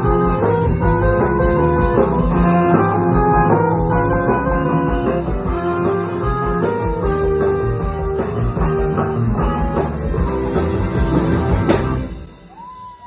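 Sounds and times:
live rock band playing: 0.0s - 13.0s
crowd whooping and whistling: 12.3s - 13.0s.

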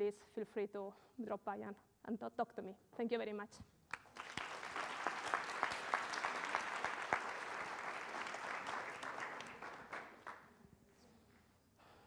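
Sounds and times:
audience applauding: 3.9s - 10.4s.

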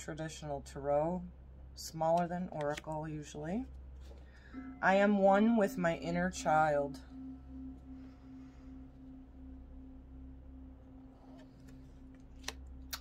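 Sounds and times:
faint low hum: 0.0s - 13.0s
pulsing low held tone: 3.4s - 13.0s.

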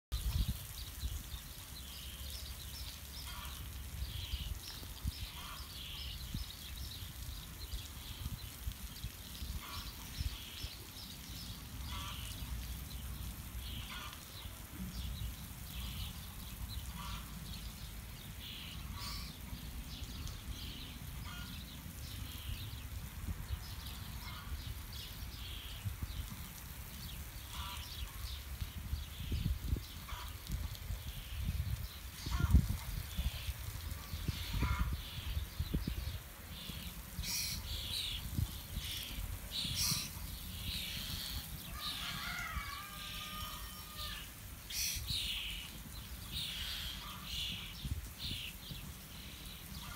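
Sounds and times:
wind rumble on microphone: 0.1s - 1.6s, 21.6s - 43.6s, 47.5s - 49.9s.

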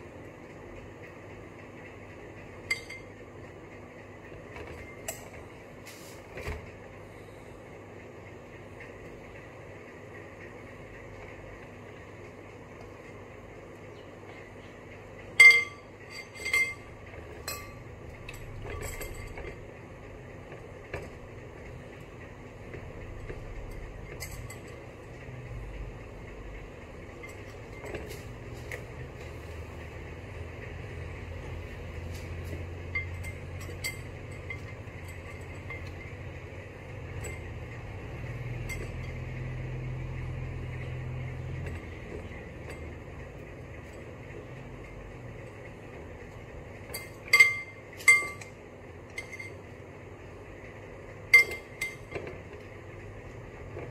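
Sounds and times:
steady low hum: 0.0s - 53.9s
metal spoon clinking on glass bowl: 47.0s - 48.5s.

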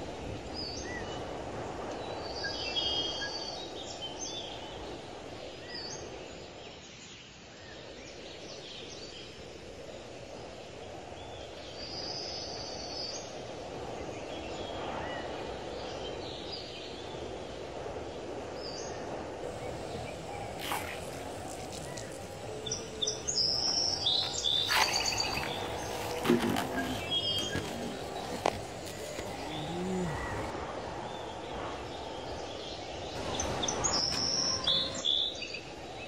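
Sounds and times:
small birds chirping: 19.4s - 30.5s.

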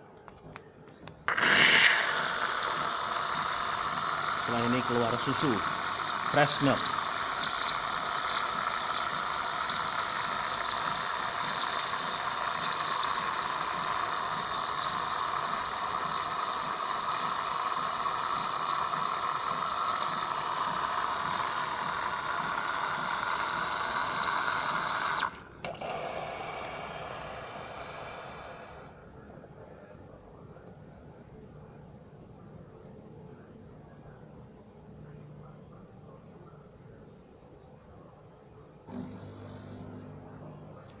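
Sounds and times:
milk frother hissing: 1.3s - 29.0s.

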